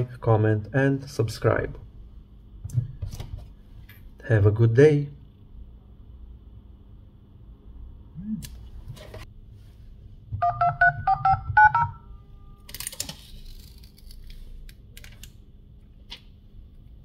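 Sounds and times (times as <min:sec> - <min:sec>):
two-tone keypad beeps: 0:10.4 - 0:12.0.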